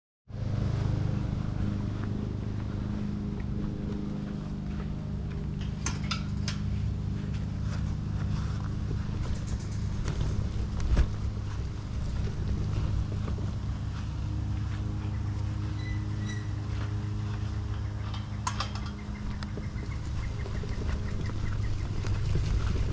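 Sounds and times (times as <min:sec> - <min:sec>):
small engine running: 0:00.3 - 0:22.9
clicks and rattles: 0:05.6 - 0:06.7, 0:09.2 - 0:11.1.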